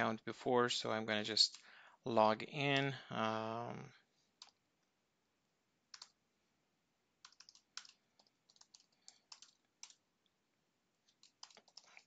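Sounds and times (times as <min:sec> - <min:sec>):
keyboard keystrokes: 0:07.2 - 0:10.0.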